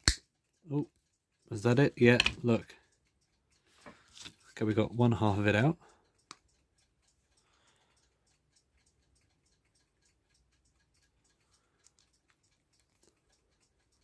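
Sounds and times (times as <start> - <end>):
pliers clicking on metal: 0.0 - 0.2.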